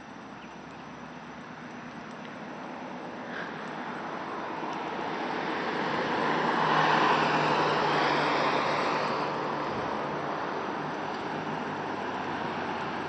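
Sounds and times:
car driving past: 0:03.4 - 0:13.0.

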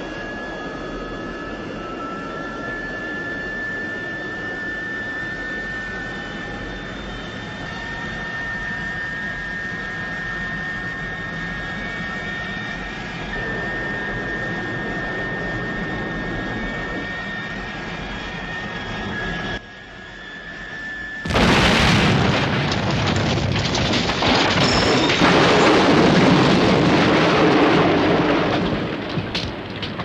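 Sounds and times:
jet engine roaring: 0:00.0 - 0:30.0
debris crashing: 0:21.3 - 0:30.0
loud explosion: 0:21.3 - 0:30.0.

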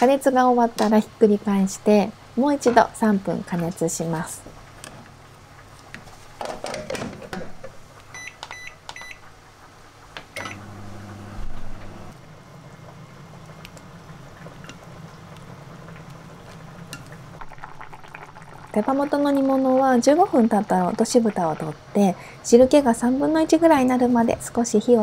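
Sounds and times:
microwave oven humming: 0:07.6 - 0:17.6
microwave keypad beeps: 0:08.1 - 0:09.2, 0:10.4 - 0:10.7.

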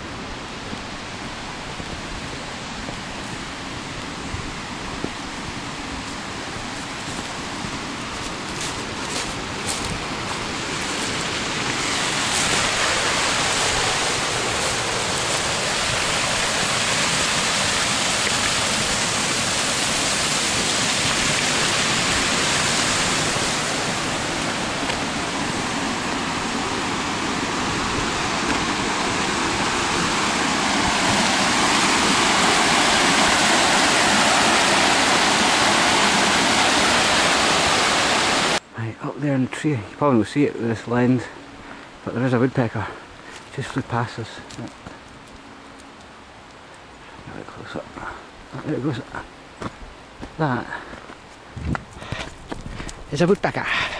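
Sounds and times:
stream rushing over rocks: 0:00.0 - 0:38.7.

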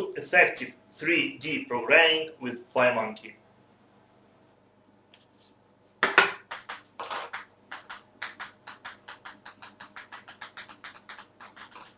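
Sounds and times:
table-tennis balls clicking: 0:06.0 - 0:11.9.

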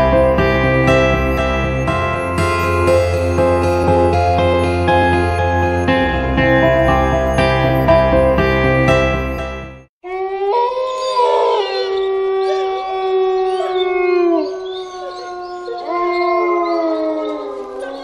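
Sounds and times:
wolves howling: 0:10.1 - 0:18.0.

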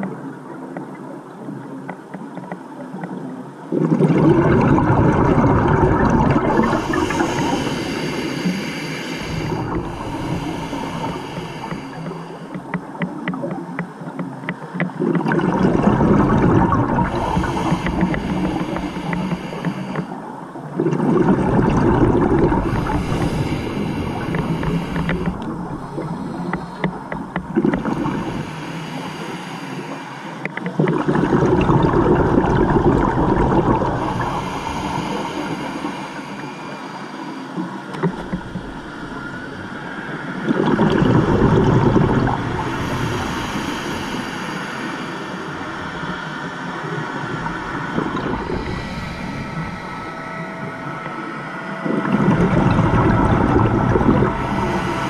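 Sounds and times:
bubbles gurgling underwater: 0:02.3 - 0:08.5, 0:09.2 - 0:20.0, 0:20.6 - 0:28.5, 0:30.4 - 0:35.7, 0:40.5 - 0:44.2, 0:46.8 - 0:51.2, 0:51.8 - 0:55.0
regulator hiss: 0:06.4 - 0:13.0, 0:16.3 - 0:20.2, 0:22.2 - 0:30.8, 0:32.9 - 0:40.4, 0:42.3 - 0:55.0.

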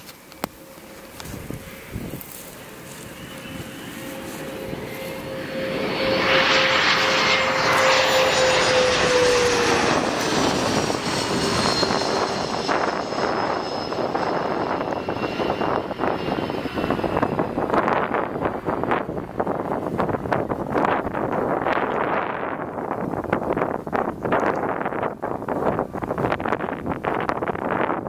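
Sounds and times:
jet engine whine: 0:00.0 - 0:28.0
jet passing overhead: 0:00.0 - 0:28.0.

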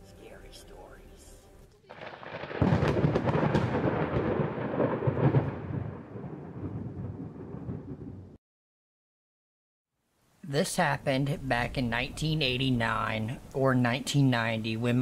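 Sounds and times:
thunder rumbling and crackling: 0:01.9 - 0:08.4.

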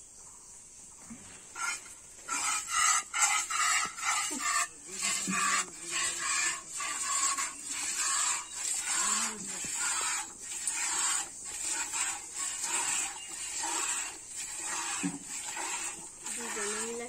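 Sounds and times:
milk squirting into metal bucket: 0:01.6 - 0:17.0.

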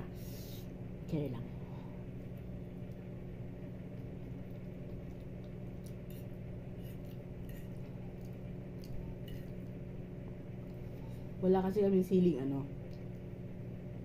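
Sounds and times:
low hum: 0:00.0 - 0:14.0
person chewing: 0:03.9 - 0:09.8.

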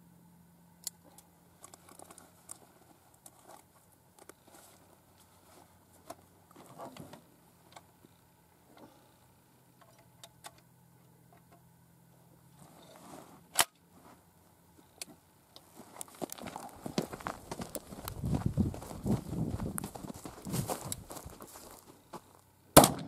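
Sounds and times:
shotgun shot: 0:22.8 - 0:23.0.

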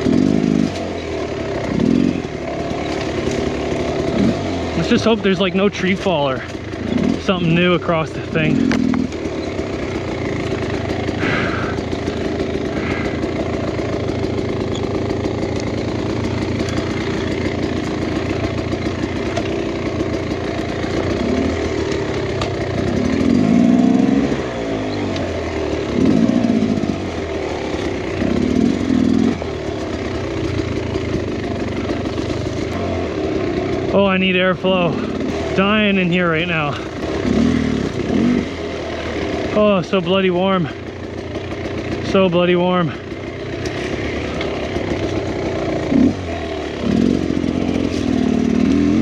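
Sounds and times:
dirt bike engine revving: 0:00.0 - 0:49.0.

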